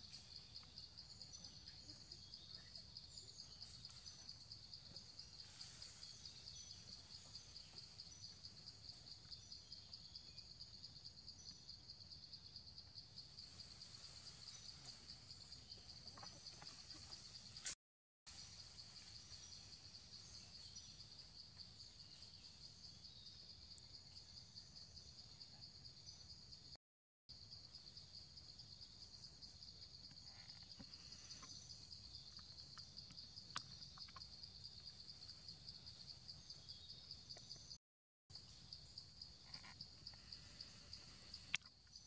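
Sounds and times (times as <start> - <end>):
insect chorus trilling: 27.3 - 37.8, 38.4 - 42.0.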